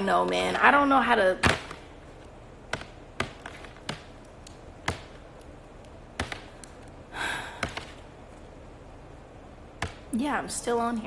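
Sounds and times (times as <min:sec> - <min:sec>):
faint room noise: 0:00.0 - 0:11.0
sharp taps and clicks: 0:02.7 - 0:07.0.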